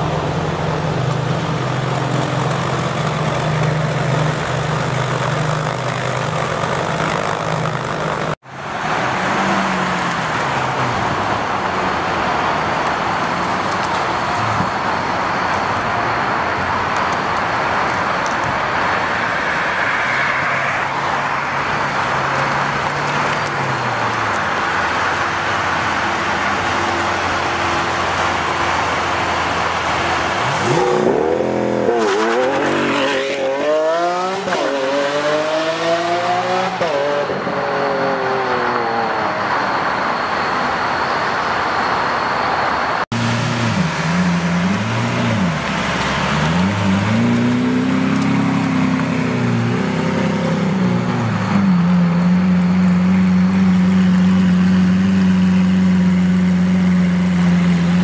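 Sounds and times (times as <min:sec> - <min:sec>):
car engines running: 0:00.0 - 0:58.0
continuous rushing noise: 0:00.0 - 0:58.0
engine revving: 0:29.8 - 0:39.2, 0:43.1 - 0:58.0.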